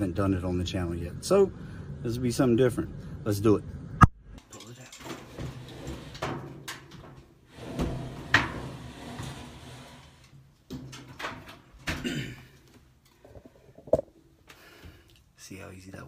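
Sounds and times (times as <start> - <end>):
dryer knocking and scraping: 4.6 - 12.2.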